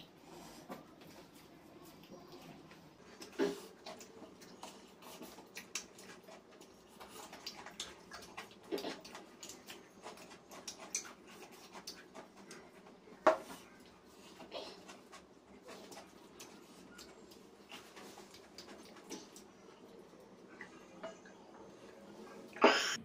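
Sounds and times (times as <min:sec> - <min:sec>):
wet chewing and lip-smacking: 0:03.1 - 0:13.0, 0:13.8 - 0:20.4.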